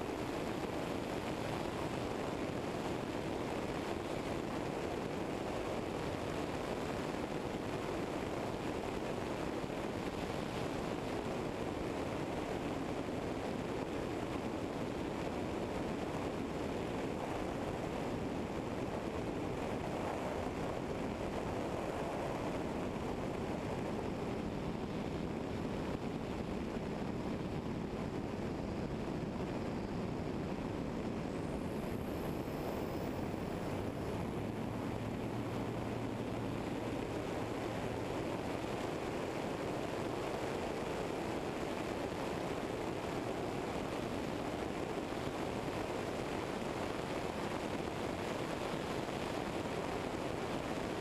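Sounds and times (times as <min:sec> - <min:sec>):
light aircraft engine idling: 0:00.0 - 0:51.0
wind noise on microphone: 0:00.0 - 0:51.0.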